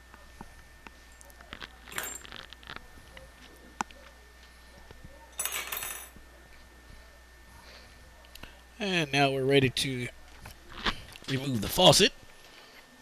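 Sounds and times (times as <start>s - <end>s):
small metal parts clinking: 1.9s - 2.6s, 5.4s - 6.1s.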